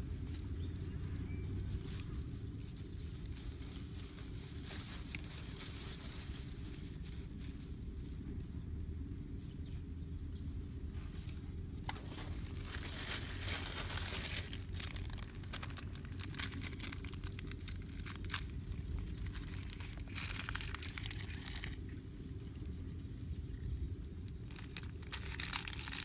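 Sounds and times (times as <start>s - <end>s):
steady low hum: 0.0s - 26.0s
plastic bag crinkling: 11.8s - 22.7s, 24.3s - 26.0s.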